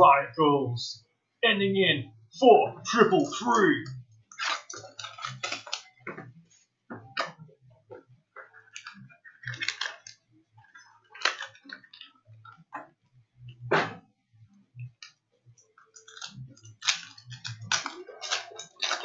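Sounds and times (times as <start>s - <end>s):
wrappers and cards crinkling: 4.3s - 6.0s, 8.6s - 12.1s, 16.0s - 19.0s.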